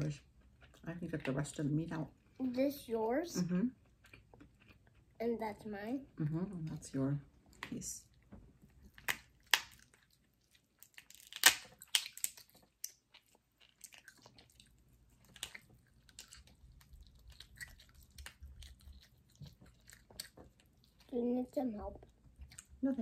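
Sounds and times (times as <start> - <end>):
chewing and wet mouth noises: 0.0 - 1.6, 3.7 - 5.2, 7.4 - 23.0
lobster shell cracking: 9.0 - 10.2, 10.8 - 14.4.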